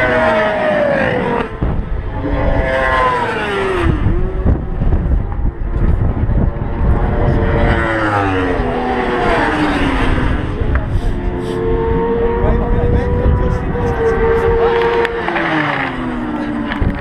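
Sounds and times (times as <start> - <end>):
racing motorbikes passing: 0.0 - 17.0
wind buffeting microphone: 0.0 - 17.0.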